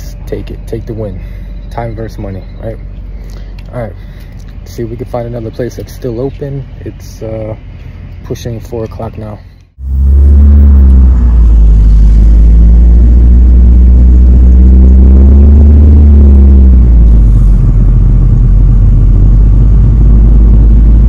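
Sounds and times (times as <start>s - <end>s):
car engine and road rumble: 0.0s - 21.0s.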